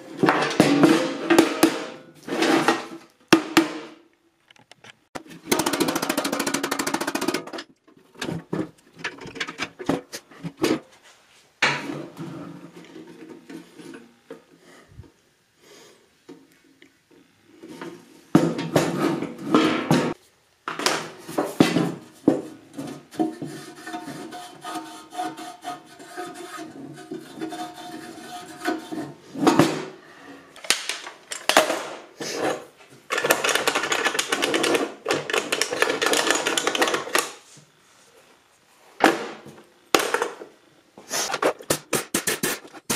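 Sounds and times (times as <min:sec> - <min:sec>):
metal can knocks and clanks: 0:00.2 - 0:02.0, 0:02.6 - 0:04.0
rapid metal strikes: 0:41.4 - 0:42.9.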